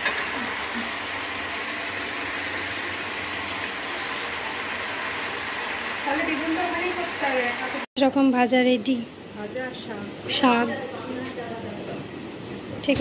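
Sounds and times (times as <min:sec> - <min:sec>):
vegetables sizzling in a pan: 0:00.0 - 0:07.9.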